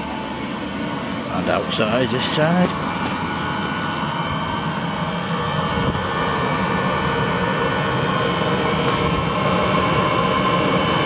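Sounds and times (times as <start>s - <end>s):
diesel heater rushing drone: 0.0s - 11.0s
high whining tones: 0.0s - 11.0s.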